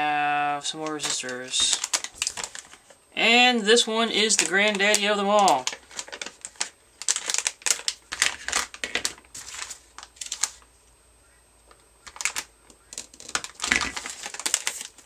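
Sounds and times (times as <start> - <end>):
plastic bag crinkling: 0.8 - 3.0, 4.2 - 10.7, 11.7 - 15.0.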